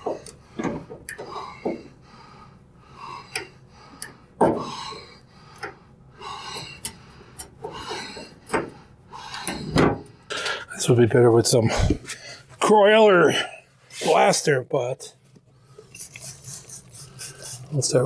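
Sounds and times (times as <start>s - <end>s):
person breathing: 0.1s - 10.7s.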